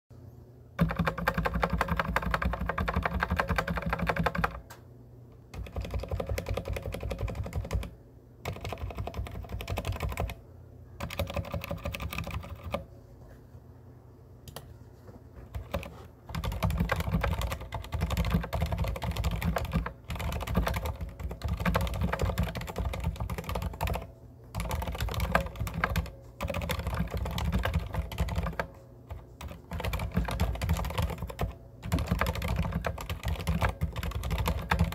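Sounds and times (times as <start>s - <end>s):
fast typing on mechanical keyboard: 0.8s - 4.6s, 5.5s - 10.4s, 11.0s - 12.8s, 15.5s - 34.9s.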